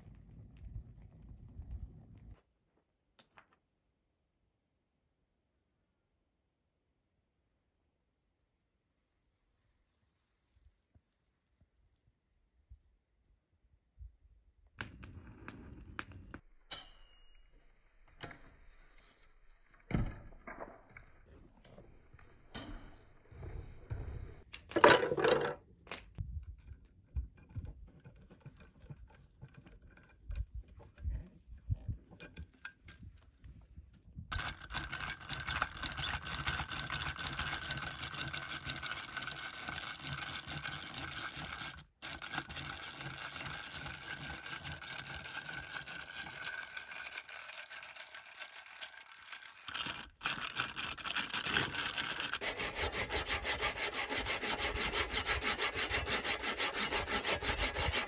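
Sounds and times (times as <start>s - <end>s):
drill boring through bone: 34.3s - 58.0s.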